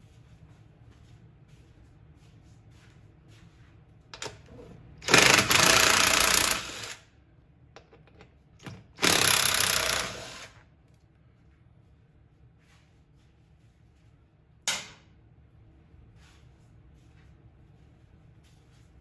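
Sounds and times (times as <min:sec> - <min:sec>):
cordless power driver running: 0:05.0 - 0:07.0, 0:09.0 - 0:10.6.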